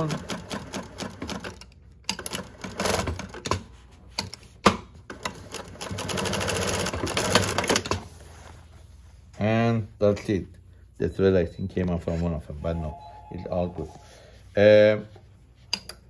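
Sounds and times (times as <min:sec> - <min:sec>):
sewing machine stitching: 0:00.0 - 0:03.6, 0:05.1 - 0:08.0.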